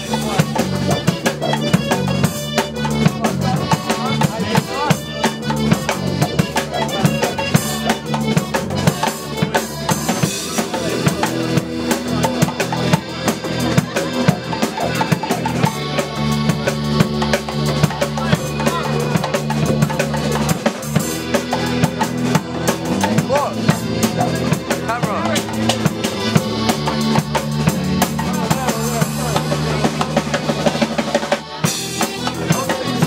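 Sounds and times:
drums keeping a steady beat: 0.0s - 33.0s
electric guitar: 0.0s - 33.0s
keyboard: 0.0s - 33.0s
tuba bass line: 0.0s - 33.0s.

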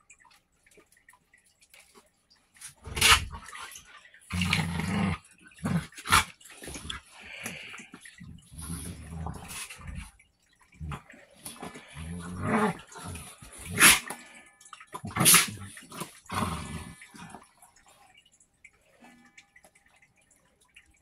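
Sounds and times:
dogs growling: 4.3s - 7.7s, 8.3s - 10.1s, 10.8s - 14.3s, 15.0s - 17.5s.

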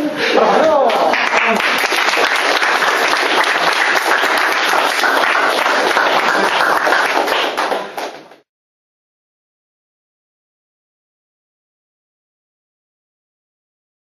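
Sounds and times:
crowd applauding: 0.6s - 8.4s.

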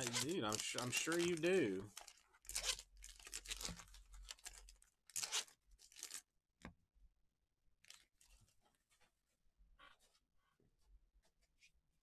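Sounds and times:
wrappers tearing and crinkling: 0.0s - 6.2s.

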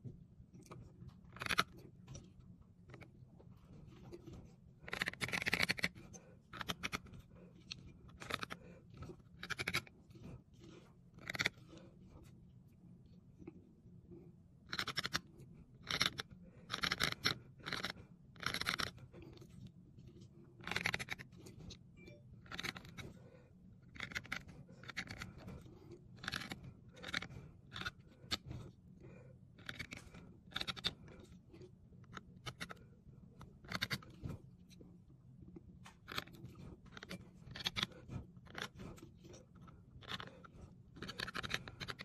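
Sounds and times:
knife scraping stone: 3.8s - 12.2s, 14.7s - 19.5s, 20.6s - 21.8s, 22.4s - 23.3s, 23.9s - 31.4s, 36.0s - 42.0s.

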